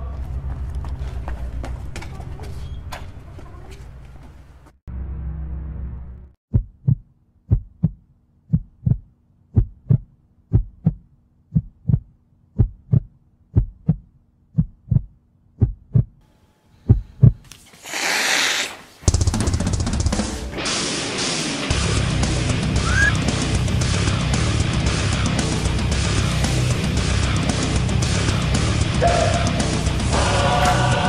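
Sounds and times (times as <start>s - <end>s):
heartbeat thumps: 6.5s - 16.2s, 16.9s - 17.4s.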